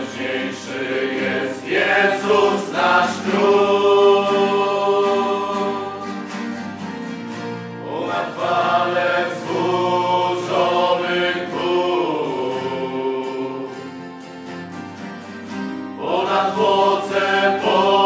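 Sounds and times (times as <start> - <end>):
choir singing a hymn: 0.0 - 6.7, 7.8 - 14.1, 16.0 - 18.0.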